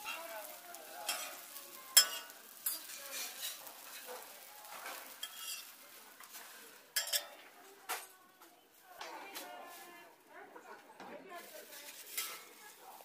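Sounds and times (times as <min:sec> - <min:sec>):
metal spatula scraping griddle: 0:00.0 - 0:07.5, 0:11.8 - 0:12.8
pancakes sizzling on griddle: 0:00.0 - 0:10.1, 0:11.4 - 0:13.0.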